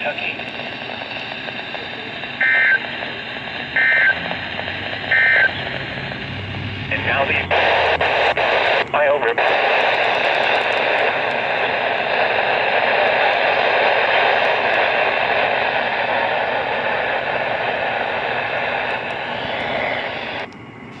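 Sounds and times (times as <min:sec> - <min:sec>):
radio static: 0:00.0 - 0:21.0.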